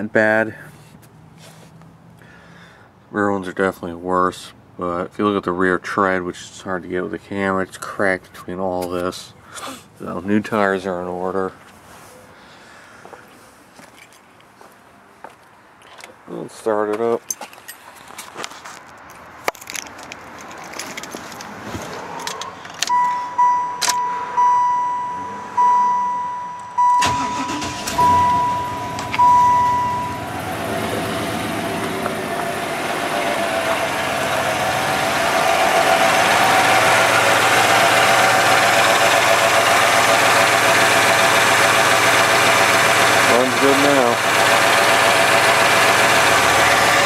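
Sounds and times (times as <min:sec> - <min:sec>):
dashboard warning chime beeping: 0:22.9 - 0:31.1
car engine idling: 0:23.0 - 0:47.0
engine cranking: 0:26.8 - 0:47.0.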